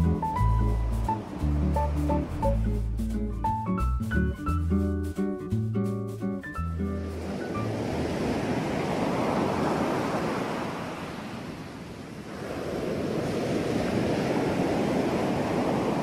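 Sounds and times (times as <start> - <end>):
ocean surf washing in: 0.0 - 3.2, 6.8 - 16.0.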